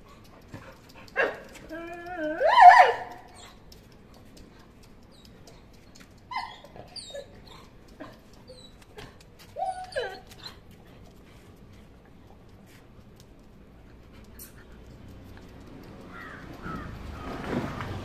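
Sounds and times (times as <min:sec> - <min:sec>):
puppies whimpering and yipping: 0:01.2 - 0:03.6, 0:06.3 - 0:10.7.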